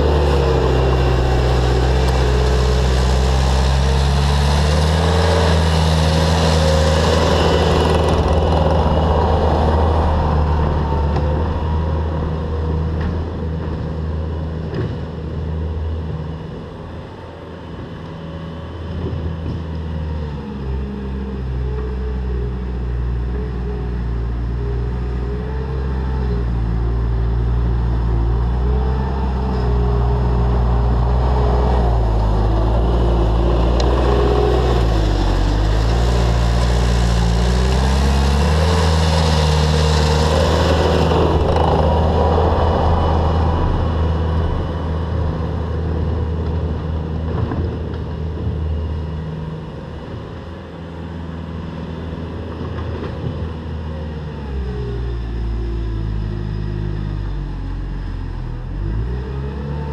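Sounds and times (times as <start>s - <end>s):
track and bucket clatter: 0.0s - 15.2s, 30.9s - 48.8s
diesel engine under load: 0.0s - 59.9s.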